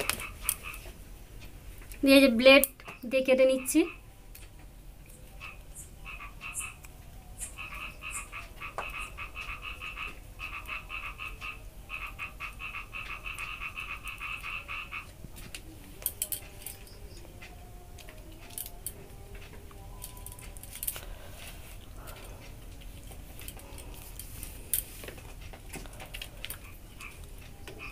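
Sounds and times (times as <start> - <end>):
frog calling in pulsed trills: 5.3 - 15.1.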